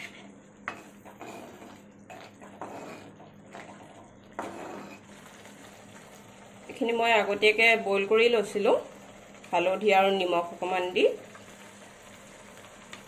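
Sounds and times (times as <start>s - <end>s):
spoon scraping thick masala: 0.0s - 5.2s.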